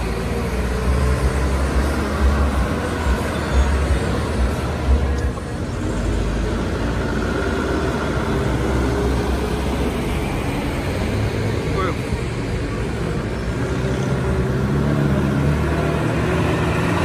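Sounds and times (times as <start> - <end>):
trucks approaching: 0.0 - 17.0.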